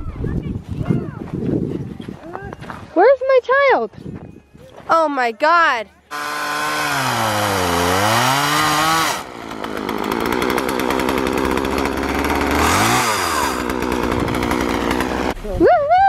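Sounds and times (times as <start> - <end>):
chainsaw cutting wood: 6.1 - 15.4.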